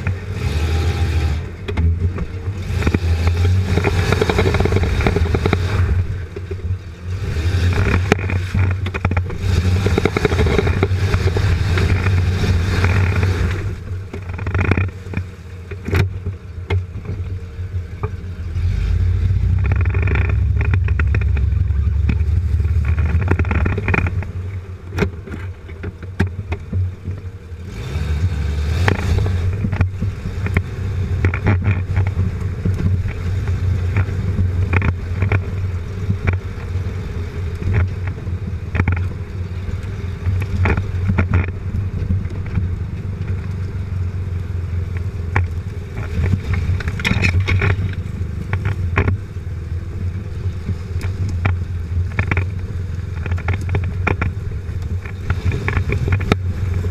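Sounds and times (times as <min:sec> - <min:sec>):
off-road vehicle engine rumbling: 0:00.0 - 0:56.9
knocks and clatter: 0:01.7 - 0:06.7, 0:07.7 - 0:17.3, 0:19.2 - 0:27.2, 0:28.8 - 0:36.4, 0:37.7 - 0:39.1, 0:45.0 - 0:49.2, 0:53.1 - 0:56.9.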